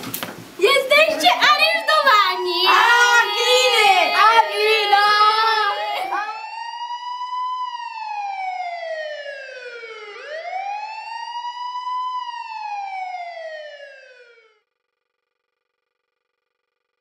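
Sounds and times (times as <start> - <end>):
police siren wailing: 1.0 - 14.6.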